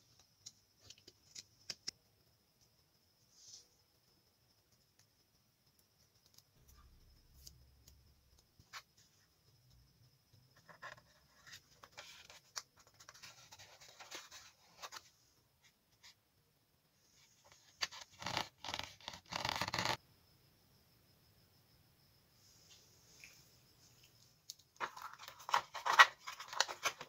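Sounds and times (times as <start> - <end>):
fingers rubbing stickers: 18.0 - 20.0.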